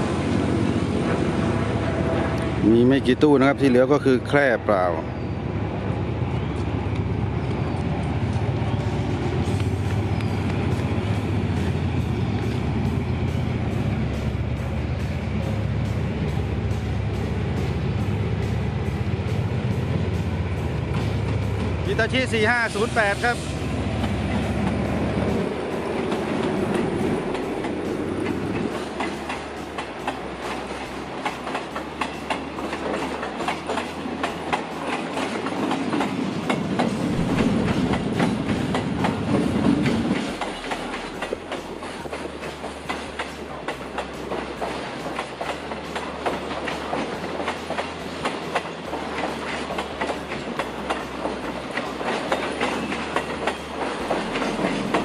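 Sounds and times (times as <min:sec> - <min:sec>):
low train rumble: 0:00.0 - 0:55.0
train wheels clattering on rail joints: 0:19.6 - 0:55.0.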